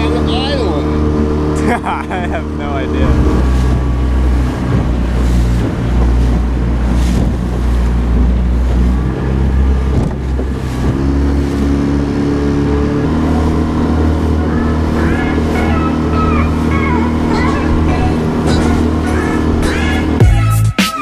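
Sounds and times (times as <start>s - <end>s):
water rushing: 0.0s - 20.5s
outboard motor running: 0.0s - 20.8s
wind noise: 3.0s - 11.8s.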